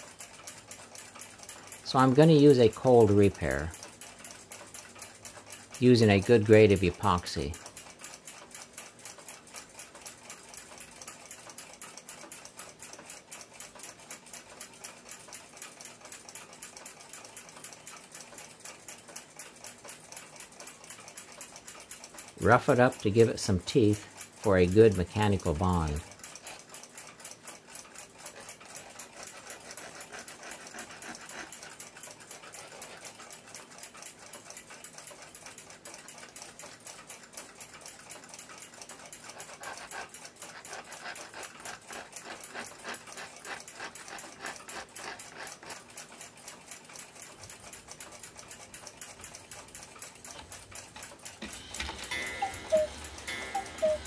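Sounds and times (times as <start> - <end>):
hand file rasping on steel: 28.3 - 33.2, 39.3 - 45.9.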